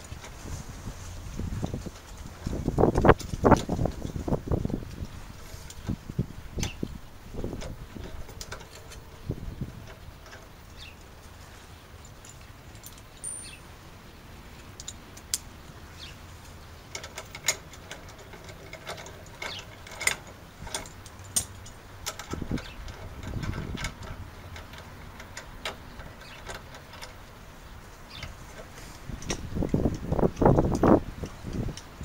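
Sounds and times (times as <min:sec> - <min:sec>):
metallic clicks of hand tools: 0:16.9 - 0:27.4.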